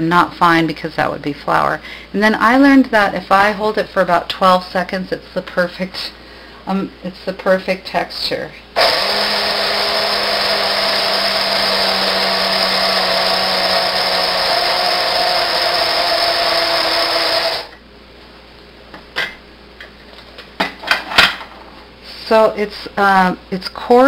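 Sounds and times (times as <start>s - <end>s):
electric grinder motor grinding: 8.8s - 17.8s.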